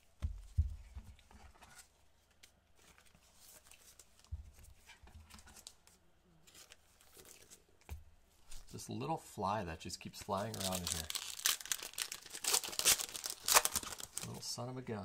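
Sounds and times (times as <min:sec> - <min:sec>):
hands rustling trading cards: 0:10.2 - 0:14.4.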